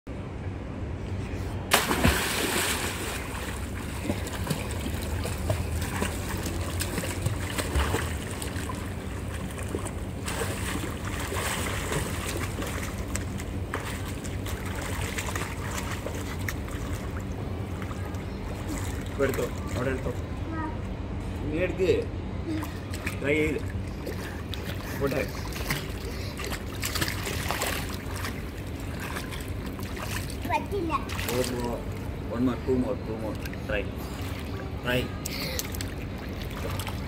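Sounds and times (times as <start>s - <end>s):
child splashing water: 1.7s - 17.2s, 23.8s - 31.8s, 34.1s - 37.0s.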